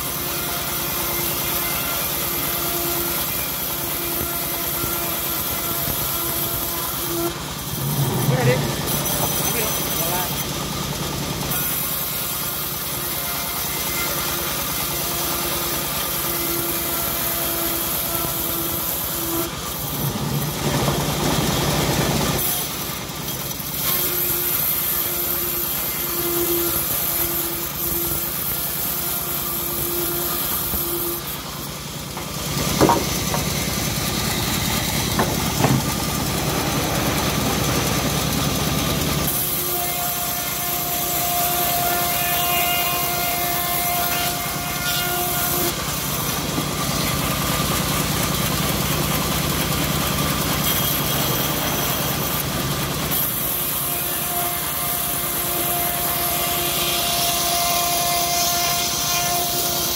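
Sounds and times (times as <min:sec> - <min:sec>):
bandsaw mill cutting wood: 0:00.0 - 0:59.9
sharp knocks: 0:32.2 - 0:33.5, 0:35.1 - 0:36.0.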